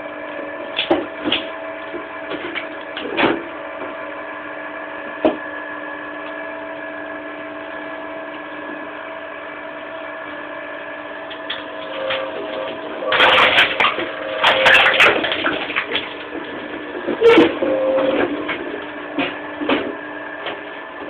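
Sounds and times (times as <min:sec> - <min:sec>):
wood cracking: 0:13.1 - 0:17.6.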